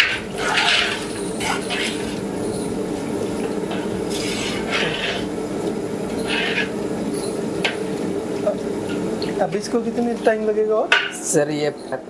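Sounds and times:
ladle scraping metal pot: 0.0s - 5.4s, 6.1s - 7.8s.

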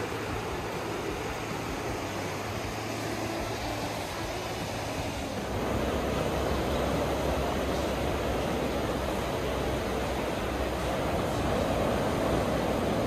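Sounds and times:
waves washing on a beach: 0.0s - 13.0s
wind rumbling on microphone: 0.0s - 13.0s.

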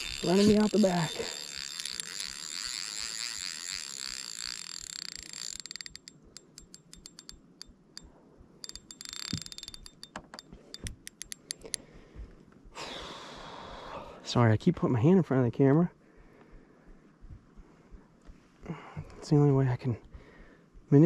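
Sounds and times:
fishing reel drag buzzing and clicking: 0.0s - 11.8s.

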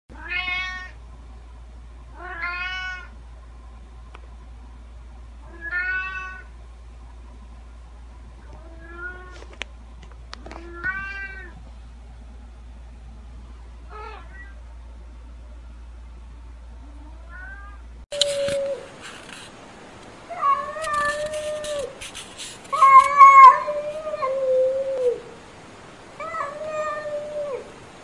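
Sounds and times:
steady low hum: 0.1s - 28.0s
cat meowing: 0.2s - 1.0s, 2.2s - 3.1s, 5.5s - 6.5s, 8.5s - 9.4s, 10.5s - 11.6s, 13.9s - 14.6s, 17.1s - 18.8s, 22.7s - 25.2s, 26.2s - 27.7s.

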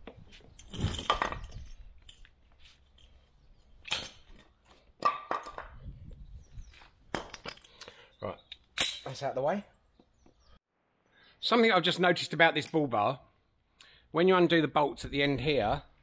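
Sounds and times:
metal clinks and knocks: 0.0s - 5.8s, 7.1s - 8.0s, 8.7s - 9.2s.

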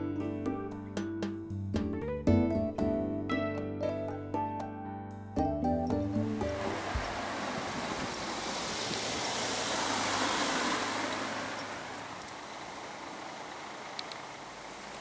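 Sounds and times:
car passing by: 6.1s - 15.0s.

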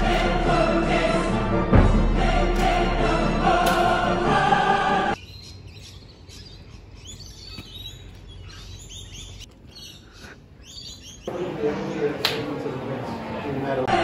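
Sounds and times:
orchestral music: 0.0s - 5.2s
birds chirping: 5.1s - 12.2s.

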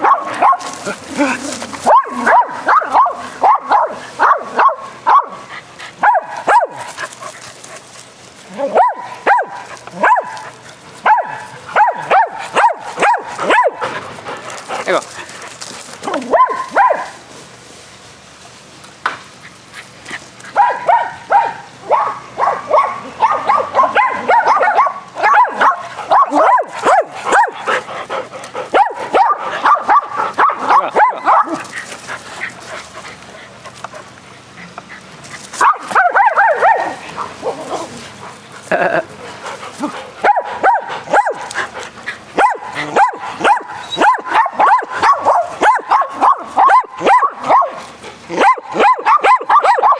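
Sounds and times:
dogs barking: 0.0s - 7.8s, 8.5s - 15.4s, 16.0s - 17.2s, 19.5s - 49.9s.

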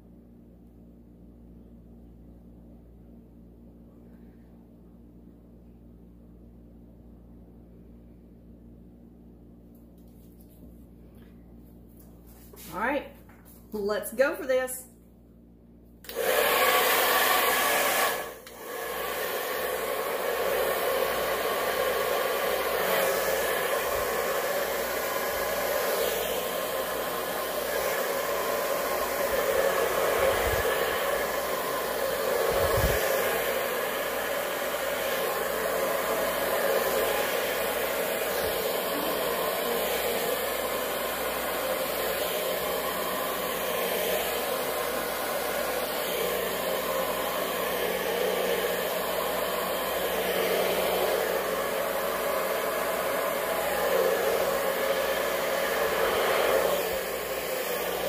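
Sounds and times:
hair dryer blowing: 12.2s - 13.1s, 16.0s - 58.0s.

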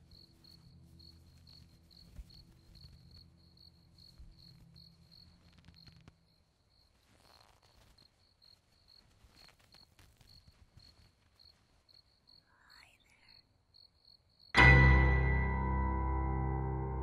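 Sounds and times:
piano and cello chord: 14.6s - 17.0s.

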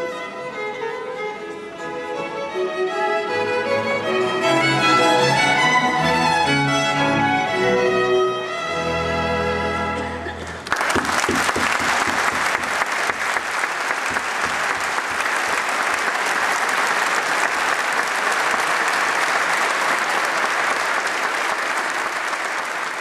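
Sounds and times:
large audience applauding: 10.6s - 23.0s.

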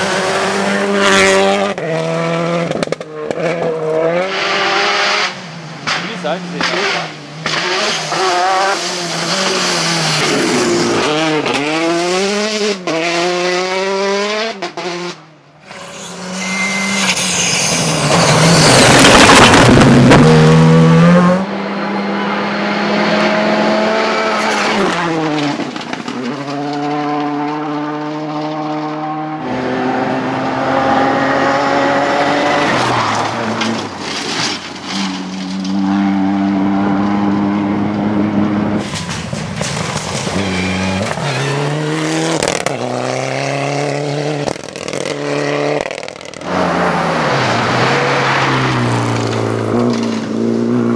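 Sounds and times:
rally car engines passing: 0.0s - 50.9s
tyres on gravel: 32.6s - 36.0s, 38.8s - 43.2s.

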